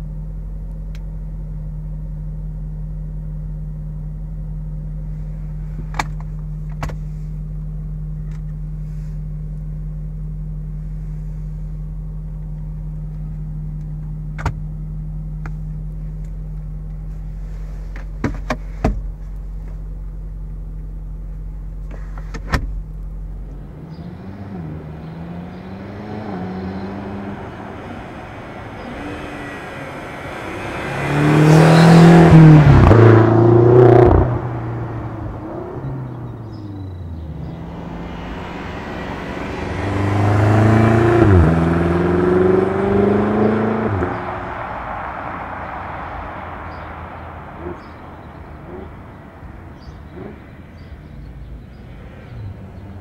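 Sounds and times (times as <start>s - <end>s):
car engine idling: 0.0s - 51.9s
car accelerating past: 23.6s - 50.9s.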